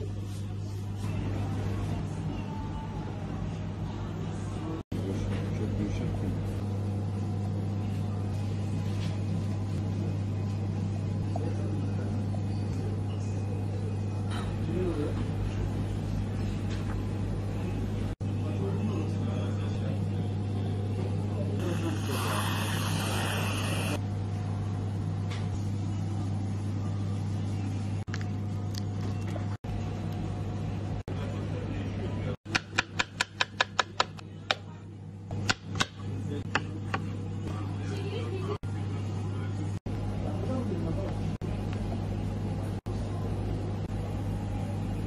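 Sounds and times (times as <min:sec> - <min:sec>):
low machine hum: 0:00.0 - 0:45.0
whipped cream can hissing: 0:21.6 - 0:24.0.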